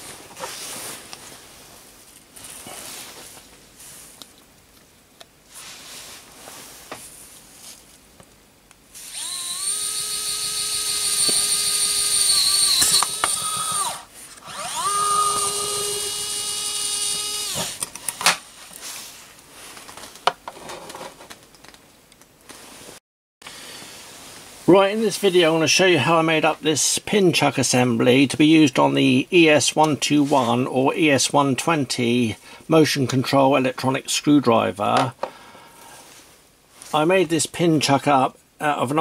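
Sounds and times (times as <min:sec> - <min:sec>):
electric screwdriver motor whine: 0:09.0 - 0:17.8.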